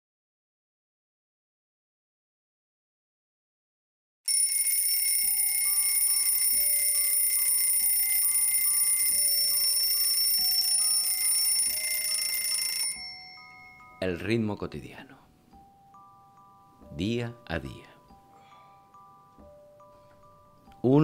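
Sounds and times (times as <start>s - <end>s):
mechanical alarm clock ringing: 4.3s - 14.0s.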